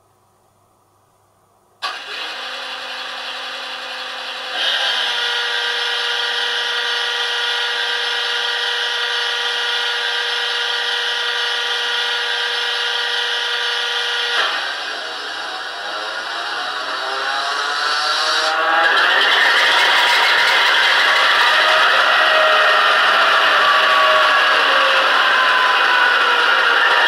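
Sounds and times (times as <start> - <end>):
model locomotive engine drone: 1.8 - 27.0.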